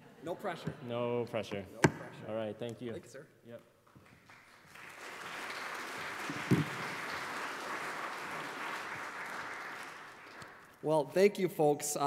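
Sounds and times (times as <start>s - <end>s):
audience applauding: 4.0s - 10.8s.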